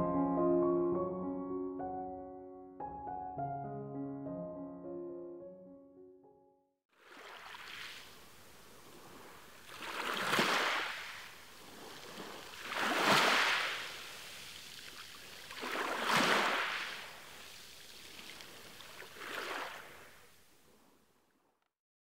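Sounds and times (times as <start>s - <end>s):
small waves washing on shore: 6.9s - 20.9s.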